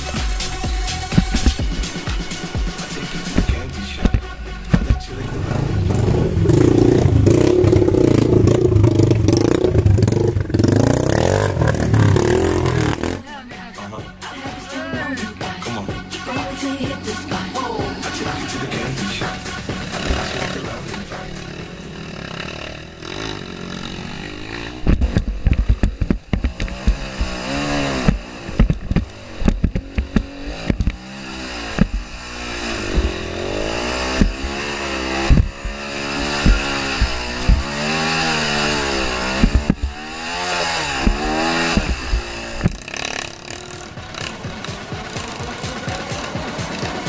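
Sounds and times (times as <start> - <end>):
bike knocking and clattering: 0.0 - 5.1, 19.3 - 47.0
dirt bike engine revving: 0.0 - 47.0.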